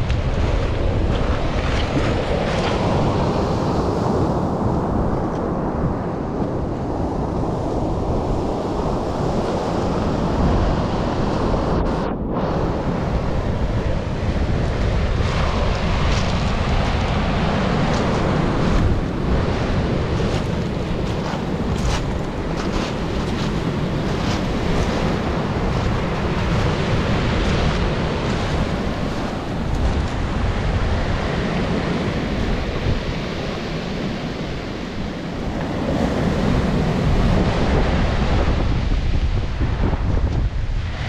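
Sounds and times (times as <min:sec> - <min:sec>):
wind buffeting microphone: 0:00.0 - 0:41.0
surf breaking on pebble beach: 0:14.1 - 0:33.2.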